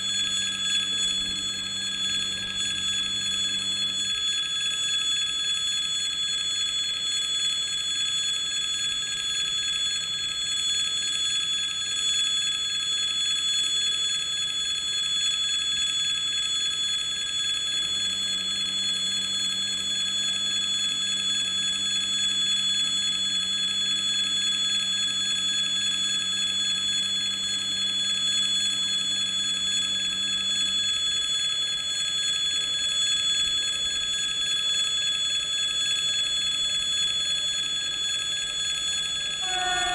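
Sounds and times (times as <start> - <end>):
electric warning bell ringing: 0.0 - 4.3, 39.0 - 39.9.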